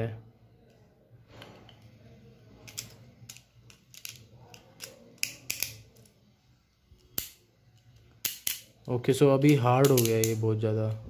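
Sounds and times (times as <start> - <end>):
plastic toy parts clicking: 2.6 - 6.2, 7.0 - 10.4.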